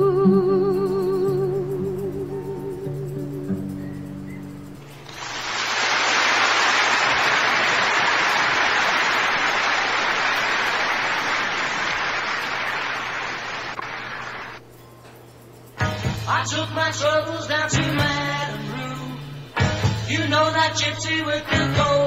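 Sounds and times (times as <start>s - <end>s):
steady rushing hiss: 4.8s - 14.7s.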